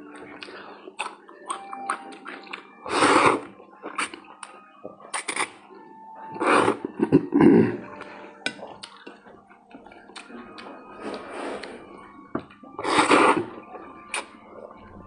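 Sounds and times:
noodles slurped: 0.3 - 4.4, 5.1 - 5.6, 12.5 - 14.4
wet chewing smacks: 8.5 - 11.2.

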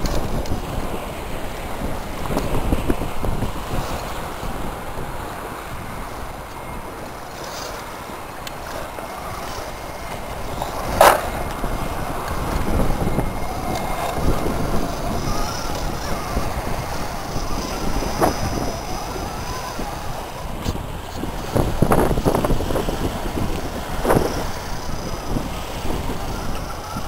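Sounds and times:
wind rumble on microphone: 0.0 - 27.0
electric motor and gears whining: 6.0 - 27.0.

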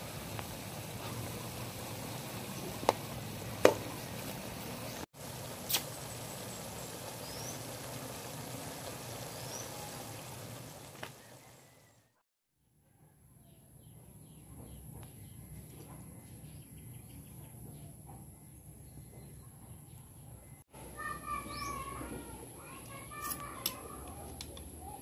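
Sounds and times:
sauce bubbling in a wok: 0.0 - 11.4
sharp pops: 5.6 - 6.0.

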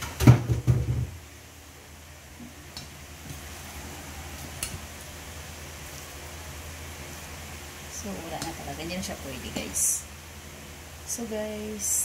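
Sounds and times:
knocks and thumps of handling: 0.0 - 1.2.

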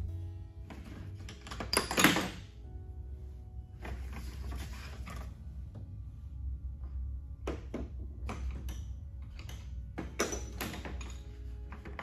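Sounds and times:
steady low hum: 0.0 - 1.6, 2.4 - 12.0
tools knocking and clattering: 7.4 - 12.0.

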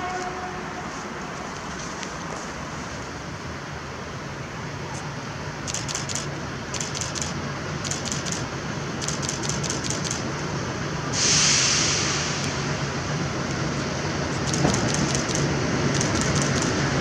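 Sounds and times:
diesel locomotive engine hum: 0.0 - 17.0
loud hiss: 11.0 - 14.2.

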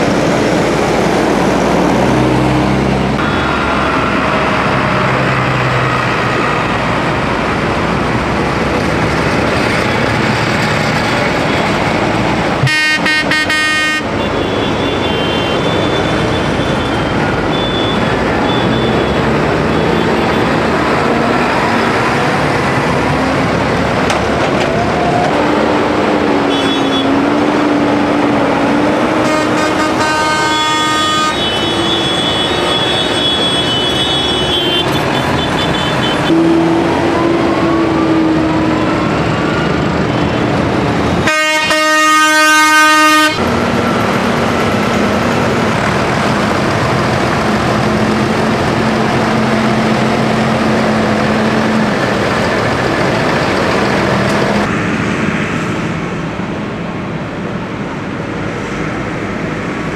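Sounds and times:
diesel tractor engines: 0.0 - 59.9
vehicle horns honking: 12.6 - 20.5, 26.4 - 27.2, 29.2 - 37.4, 41.2 - 43.4.

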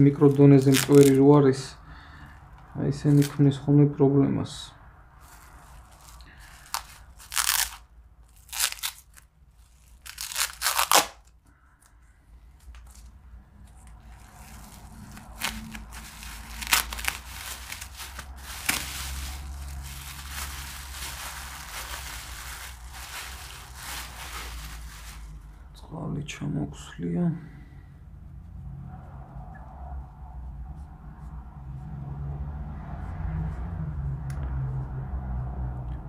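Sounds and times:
plastic bag crinkling: 0.0 - 1.3, 5.2 - 11.4, 13.7 - 25.5
tape ripping: 0.0 - 1.3, 3.1 - 3.4, 5.2 - 11.4, 13.7 - 25.4.

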